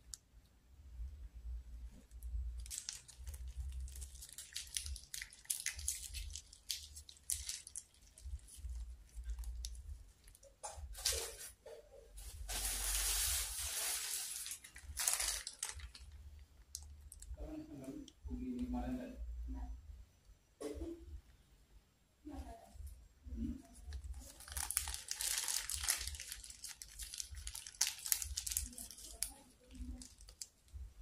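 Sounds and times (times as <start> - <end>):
plastic bag crinkling: 2.6 - 11.5, 12.2 - 17.3, 23.7 - 30.7.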